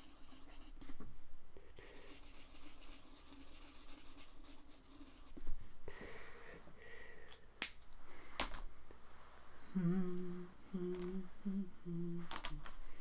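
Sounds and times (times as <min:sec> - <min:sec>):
man humming: 0:09.7 - 0:12.7.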